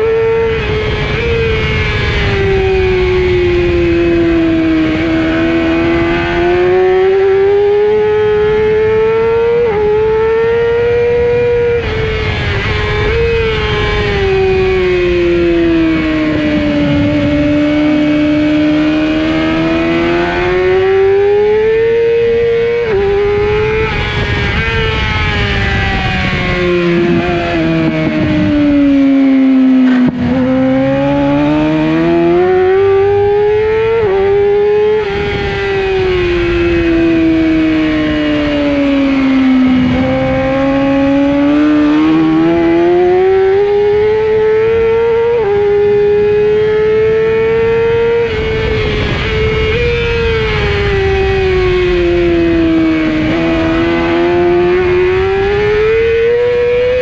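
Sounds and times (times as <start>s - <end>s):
motorcycle engine at high revs: 0.0s - 57.0s
wind rushing: 11.6s - 43.0s, 47.0s - 56.4s.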